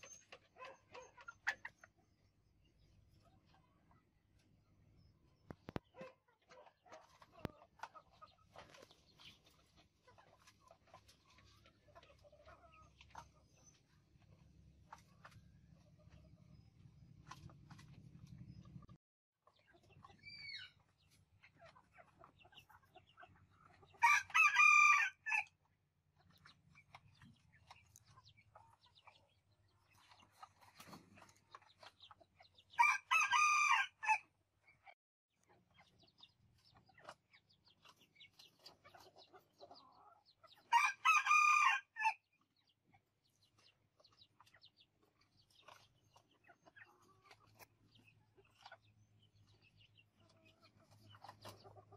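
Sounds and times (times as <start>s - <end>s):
rooster crowing: 24.0s - 25.4s, 32.8s - 34.2s, 40.7s - 42.2s.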